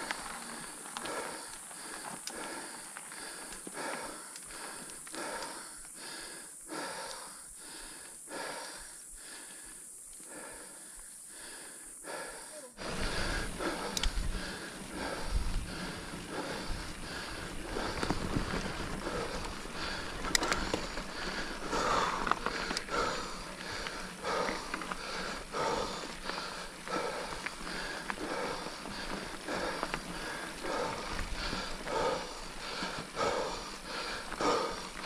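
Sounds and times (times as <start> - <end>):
tyres rumbling on dirt: 0.0 - 4.9, 12.8 - 35.0
person breathing hard: 0.0 - 35.0
wind on microphone: 12.8 - 19.8.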